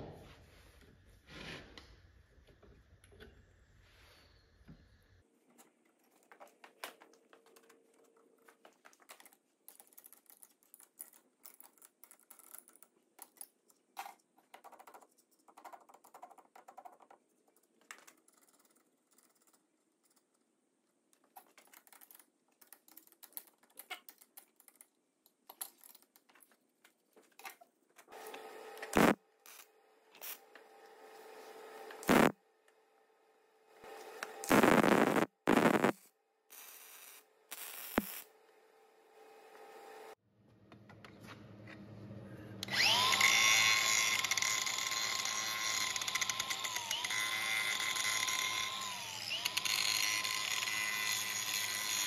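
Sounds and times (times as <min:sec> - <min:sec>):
welding crackle: 0:29.0 - 0:29.6, 0:32.0 - 0:32.3, 0:34.4 - 0:38.3.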